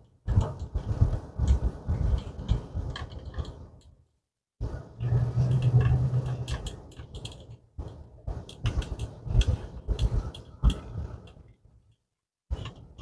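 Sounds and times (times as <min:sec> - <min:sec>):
low car hum: 0:04.6 - 0:11.4.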